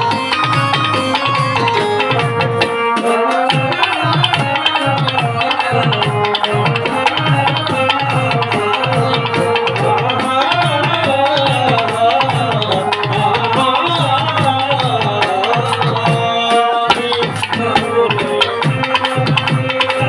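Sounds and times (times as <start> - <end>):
wavering melody line: 0.0 - 10.3
hand drums beating fast rhythm: 0.0 - 20.0.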